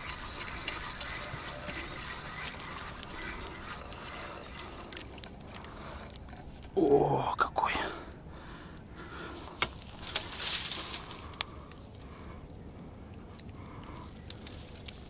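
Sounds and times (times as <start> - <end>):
steady background hiss: 4.0 - 15.0.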